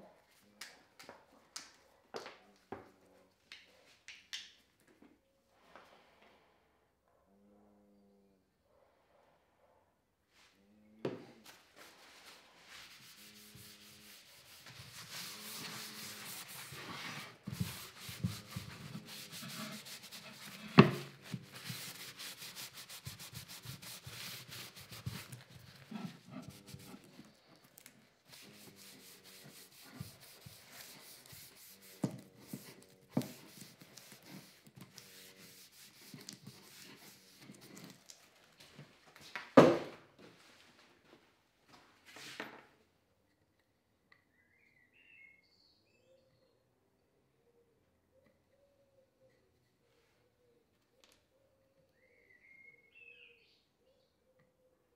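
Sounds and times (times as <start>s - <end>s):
cloth scrubbing on wood: 11.8s - 27.4s, 28.2s - 37.9s.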